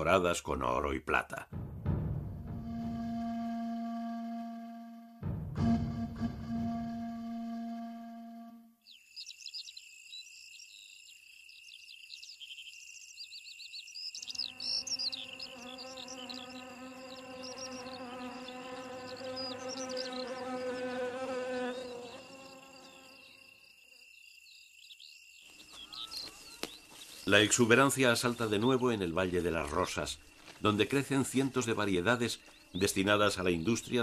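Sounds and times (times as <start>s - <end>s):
high insect trill: 8.9s - 34.0s
flying insect buzzing: 14.2s - 24.2s.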